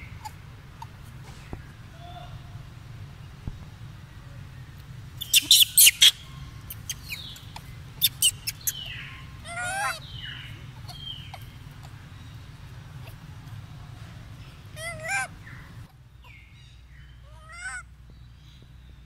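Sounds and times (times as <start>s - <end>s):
wavering animal call: 14.7s - 15.6s.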